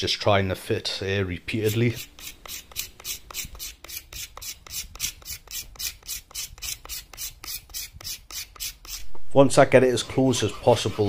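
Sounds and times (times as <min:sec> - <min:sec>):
scraper scraping wood: 0:01.6 - 0:09.1, 0:10.2 - 0:11.0.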